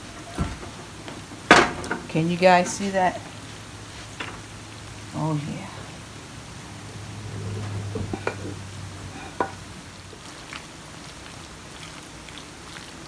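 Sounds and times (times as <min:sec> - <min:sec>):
wooden spoon stirring pasta: 0:08.1 - 0:13.0.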